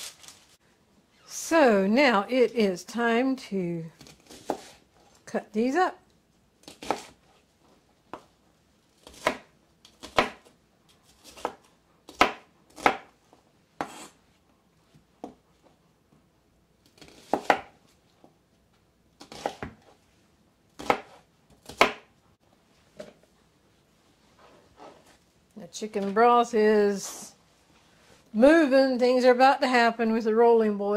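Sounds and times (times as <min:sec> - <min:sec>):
knife chopping on cutting board: 0:04.0 - 0:04.8, 0:06.6 - 0:07.2, 0:09.0 - 0:10.5, 0:11.1 - 0:13.2, 0:13.8 - 0:14.2, 0:16.9 - 0:17.8, 0:19.2 - 0:19.9, 0:20.8 - 0:22.1.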